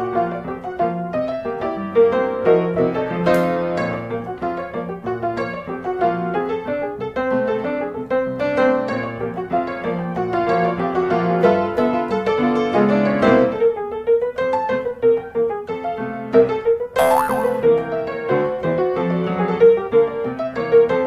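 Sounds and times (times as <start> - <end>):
piano music: 17.0 - 17.8.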